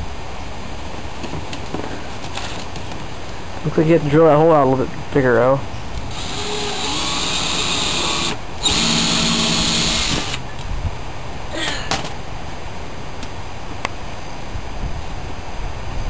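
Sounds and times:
cordless drill drilling: 6.1s - 10.4s.

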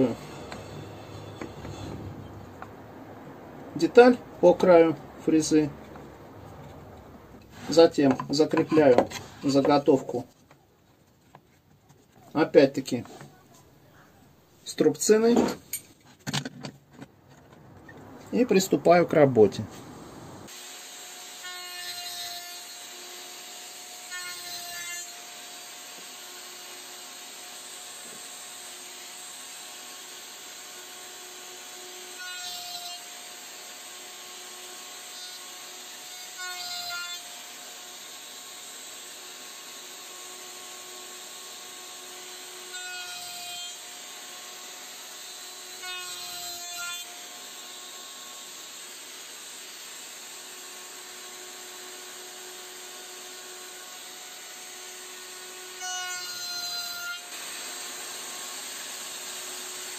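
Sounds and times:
router whining while cutting wood: 20.5s - 59.9s.

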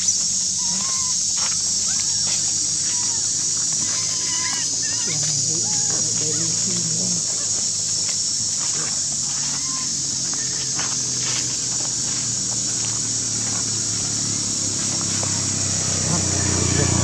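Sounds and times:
high-pitched insect drone: 0.0s - 17.0s
monkeys rustling dry leaves: 0.0s - 17.0s
low engine hum: 8.4s - 17.0s.

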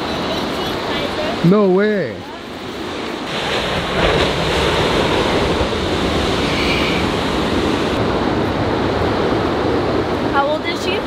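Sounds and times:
ocean surf breaking: 0.0s - 11.0s
wind on microphone: 2.8s - 11.0s.

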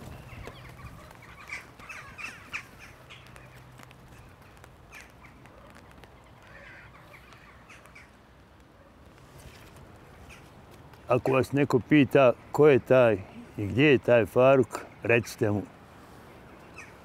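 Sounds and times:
crows cawing: 0.2s - 8.2s, 16.7s - 17.0s.

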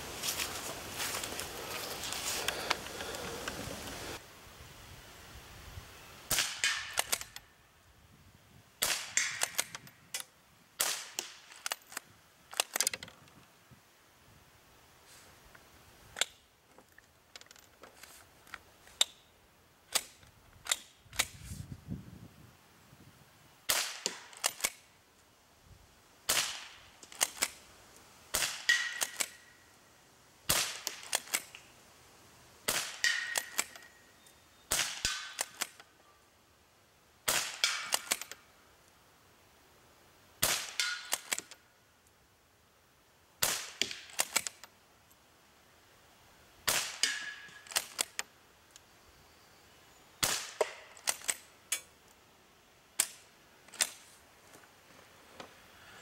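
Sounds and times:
rifle shots: 6.3s - 7.4s, 8.8s - 9.8s, 23.7s - 24.8s, 26.3s - 27.6s, 28.3s - 29.5s, 30.5s - 31.5s, 32.7s - 33.8s, 34.7s - 35.8s, 37.3s - 38.3s, 40.4s - 41.4s, 43.4s - 44.5s, 46.6s - 48.2s, 50.2s - 51.4s.

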